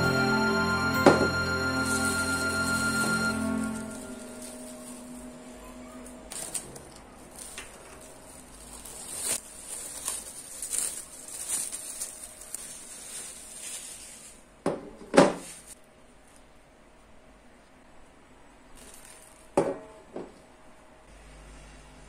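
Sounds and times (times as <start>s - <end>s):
plastic film crinkling: 6.3s - 14.5s, 18.7s - 19.6s.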